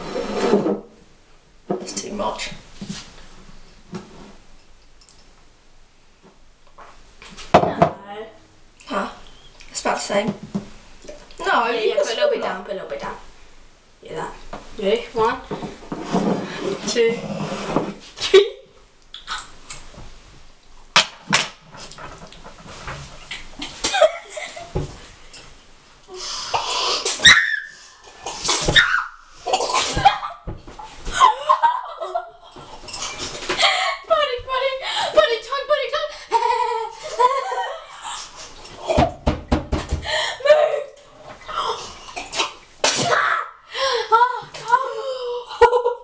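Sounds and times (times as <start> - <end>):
people coughing and spluttering: 29.4 - 30.4, 41.6 - 43.3
sharp knocks and thuds: 38.9 - 40.1.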